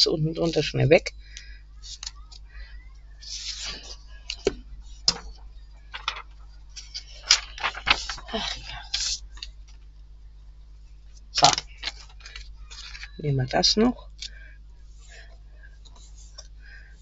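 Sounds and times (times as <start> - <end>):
paper rustling: 1.8 - 2.4, 3.2 - 9.9, 11.1 - 13.2.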